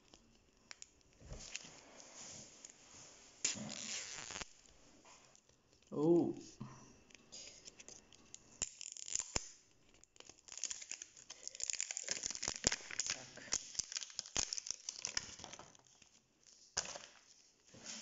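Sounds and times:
plastic wrapping crinkling: 0:07.0 - 0:17.5.

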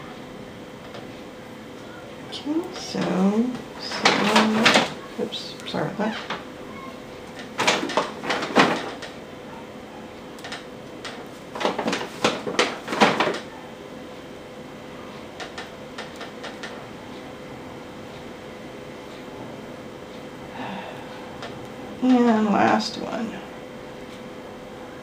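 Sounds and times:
plastic straws rattling and rubbing: 0:03.8 - 0:05.0, 0:07.4 - 0:09.1, 0:11.5 - 0:13.5.

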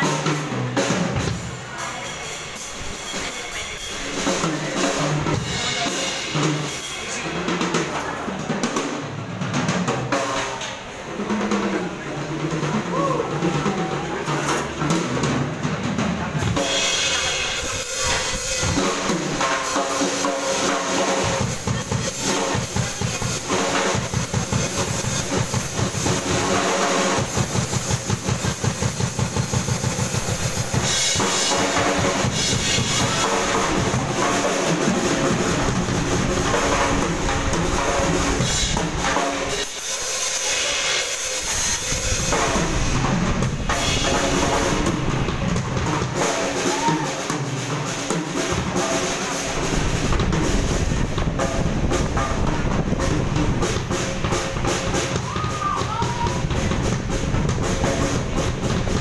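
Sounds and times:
drum kit solo: 0:00.0 - 0:59.0
cymbal wash: 0:16.5 - 0:55.2.

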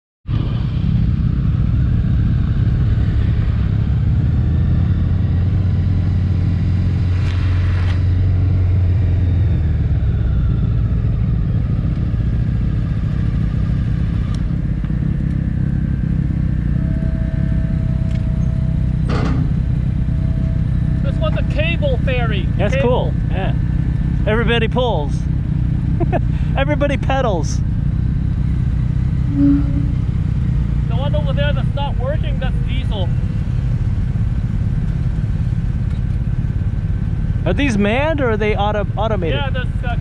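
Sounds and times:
wind rushing over microphone: 0:00.3 - 0:05.7
motorcycle engine droning: 0:00.3 - 0:40.0.

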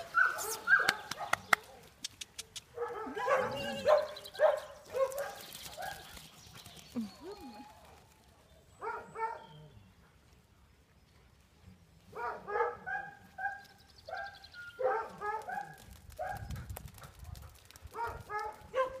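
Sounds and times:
dogs barking: 0:00.0 - 0:01.8, 0:02.7 - 0:06.2, 0:08.8 - 0:09.6, 0:12.1 - 0:19.0.

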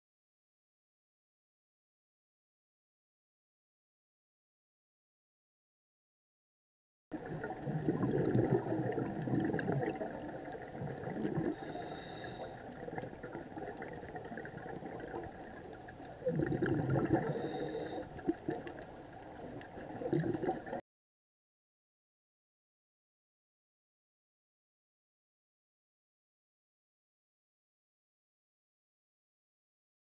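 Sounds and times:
exhaled bubbles rumbling: 0:07.1 - 0:20.8
diver breathing through regulator: 0:11.2 - 0:13.1, 0:16.2 - 0:18.4.

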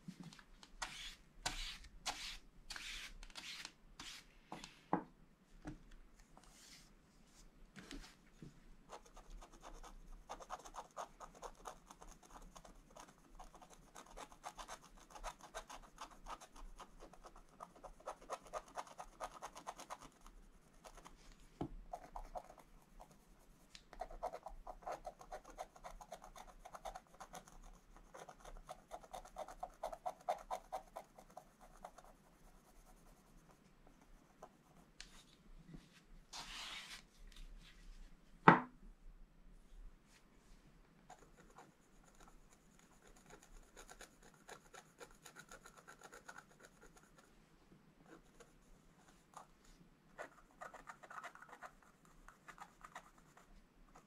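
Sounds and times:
stylus scratching paper: 0:00.8 - 0:04.2
brush sweeping across paper: 0:00.8 - 0:04.9, 0:06.4 - 0:08.3, 0:35.0 - 0:38.2.

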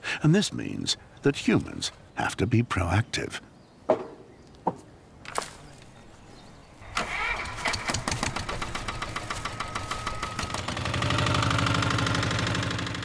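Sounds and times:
tractor engine chugging: 0:06.8 - 0:13.0.

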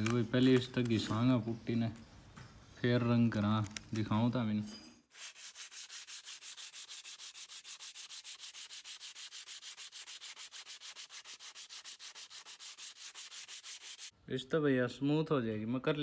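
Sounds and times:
sandpaper scratching: 0:05.1 - 0:14.1.

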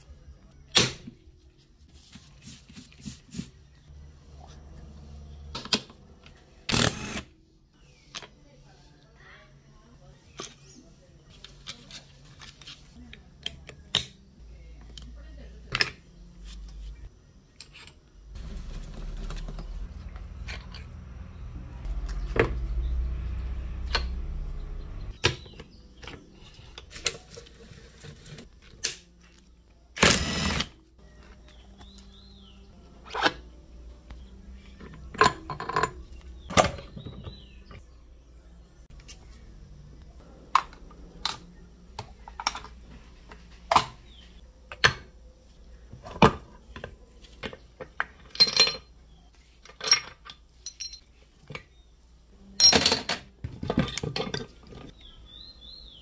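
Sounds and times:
metal parts clinking: 0:48.2 - 0:49.0, 0:49.6 - 0:51.1.

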